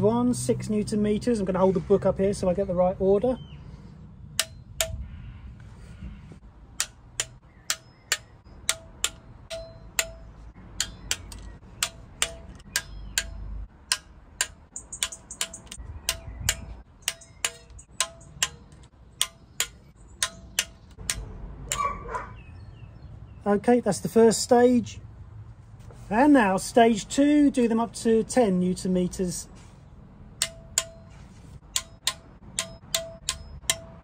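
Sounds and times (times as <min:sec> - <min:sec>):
torque wrench clicking: 0:10.8 - 0:21.9.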